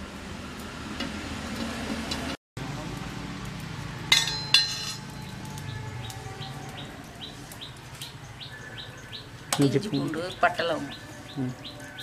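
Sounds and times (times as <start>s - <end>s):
metal spoon clinking on steel plate: 4.1s - 5.1s
bird chirping: 5.2s - 12.0s.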